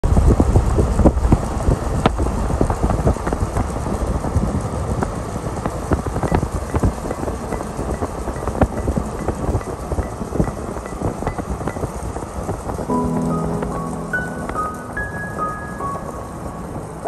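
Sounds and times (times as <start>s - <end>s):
vehicle road noise rumble: 0.0s - 17.0s
small knocks and rattles: 5.0s - 12.9s.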